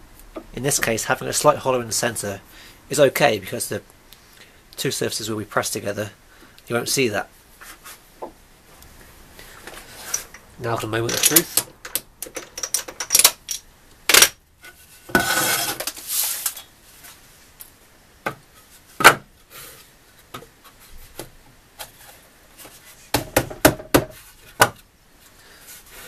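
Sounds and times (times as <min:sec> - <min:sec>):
tools clicking and clinking: 0:11.1 - 0:14.3
wood scraping: 0:14.6 - 0:17.2.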